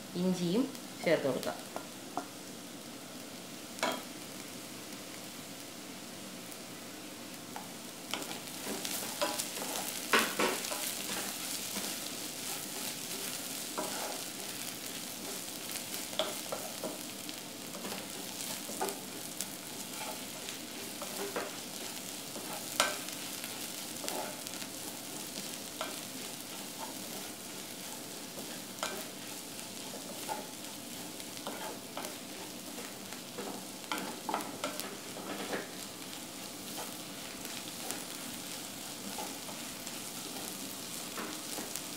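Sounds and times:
onions sizzling in hot oil: 0.0 - 41.9
wooden spatula scraping a pot: 24.0 - 24.5, 25.1 - 35.7.

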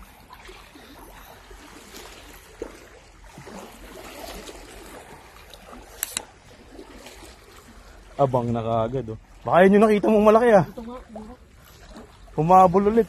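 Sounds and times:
seawater lapping over rocks: 0.0 - 13.0.

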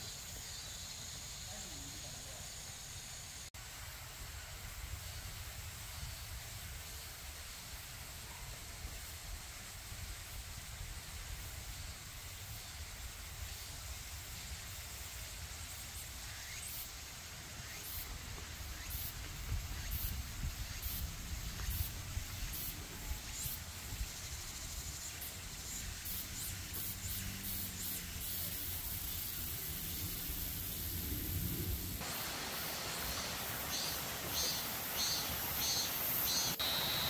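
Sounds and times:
stream flowing: 32.0 - 37.0.

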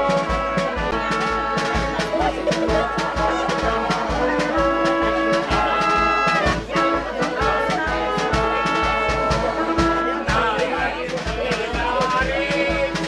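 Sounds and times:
brass and accordion band playing: 0.0 - 13.0.

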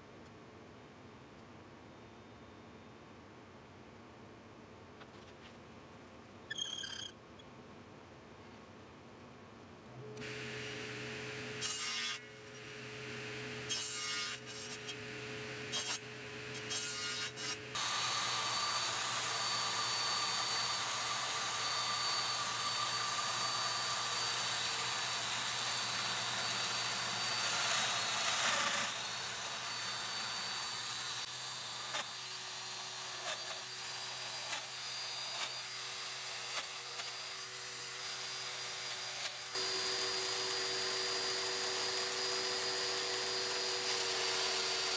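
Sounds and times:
router cutting wood: 10.2 - 44.9.

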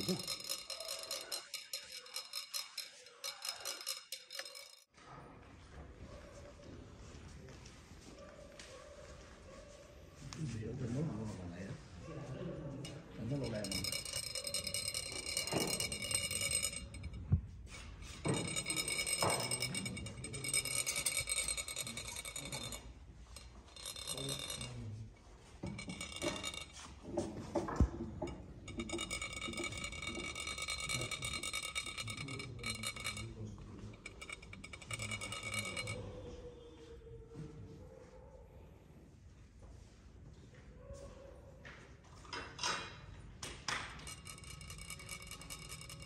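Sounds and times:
rod rasping metal funnel: 0.0 - 4.9, 13.2 - 24.9, 25.6 - 36.0.

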